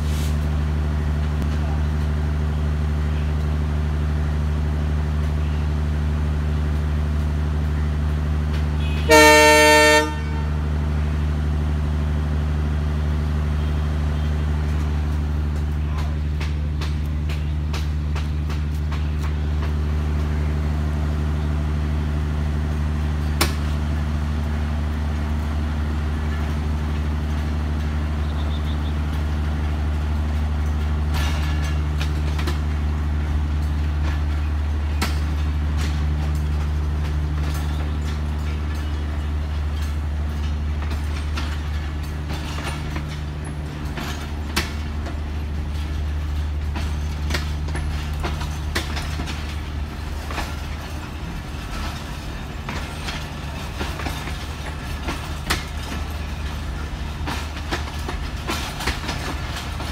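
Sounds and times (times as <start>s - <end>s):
train coaches rolling past: 0.0s - 59.9s
wheels and couplings clanking: 13.3s - 59.9s.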